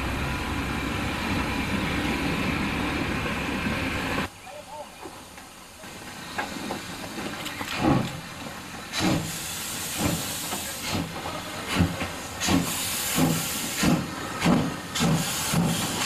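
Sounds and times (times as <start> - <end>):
steam hissing: 5.0 - 16.0
steam locomotive exhaust chuffs: 5.1 - 16.0.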